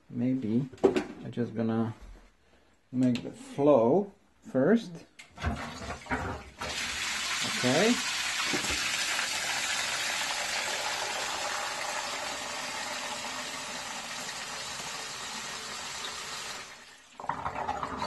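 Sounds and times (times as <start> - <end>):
coolant gushing into plastic container: 5.4 - 18.0.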